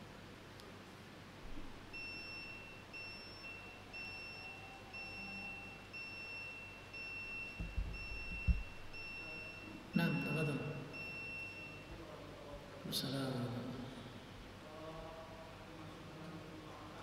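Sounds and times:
high electronic beeping: 2.0s - 11.9s
low thumps: 7.6s - 9.0s.

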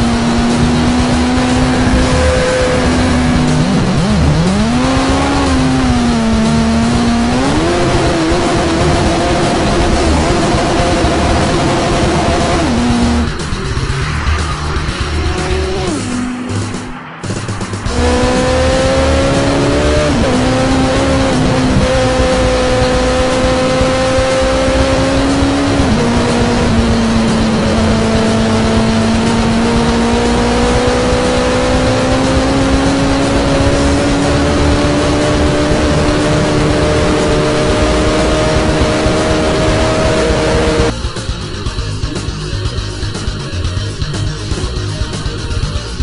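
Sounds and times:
rushing wind: 0.0s - 5.8s
motorcycle engine running: 0.0s - 46.0s.

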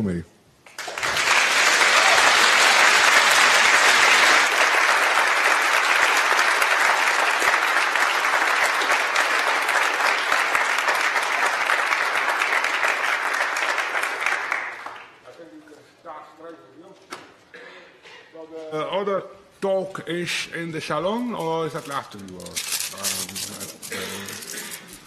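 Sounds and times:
audience applauding: 0.7s - 15.2s.

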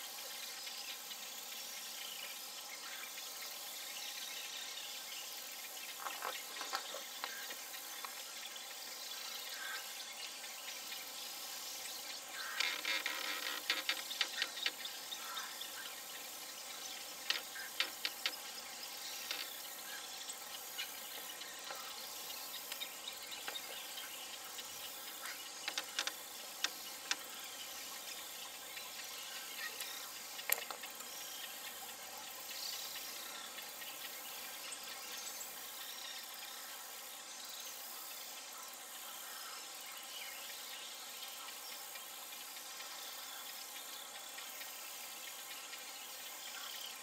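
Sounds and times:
steady hiss: 0.0s - 47.0s.

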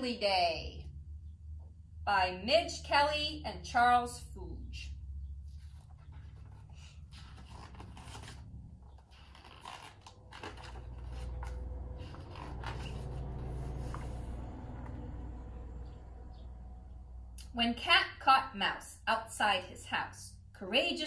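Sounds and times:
low steady hum: 0.0s - 21.0s
book pages rustling: 5.4s - 15.1s.

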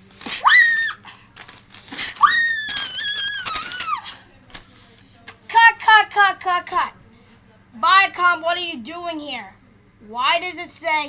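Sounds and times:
child squealing: 0.4s - 1.1s.

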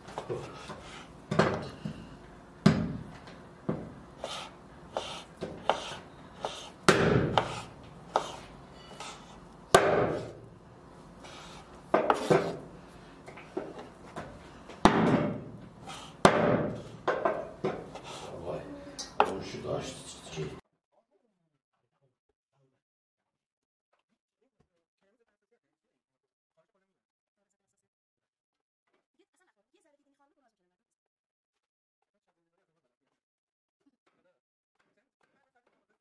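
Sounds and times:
knife slicing strokes: 4.2s - 10.4s, 11.2s - 12.7s, 15.8s - 18.6s
knife knocking on wooden board: 5.0s - 8.4s, 9.7s - 10.4s.

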